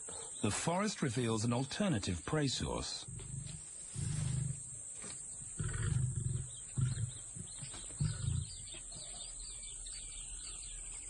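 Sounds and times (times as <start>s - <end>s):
lion growling: 3.0s - 4.8s, 5.5s - 8.7s.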